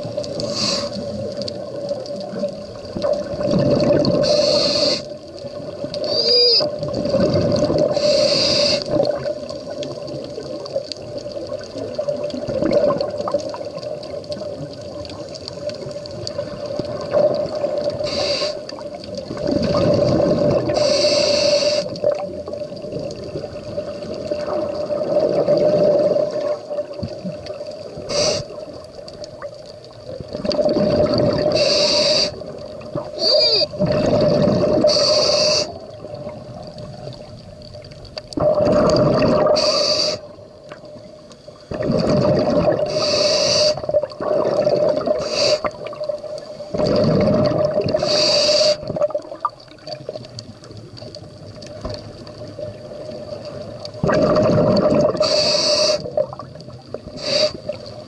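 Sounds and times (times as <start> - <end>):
gurgle of exhaled bubbles: 0.0 - 58.0
regulator inhale hiss: 0.3 - 1.3, 4.2 - 5.2, 7.8 - 9.0, 17.9 - 18.8, 20.7 - 22.0, 28.0 - 28.7, 31.4 - 32.6, 34.8 - 35.9, 39.4 - 40.4, 42.8 - 44.0, 45.2 - 46.7, 48.0 - 48.9, 55.1 - 56.2, 57.0 - 58.0.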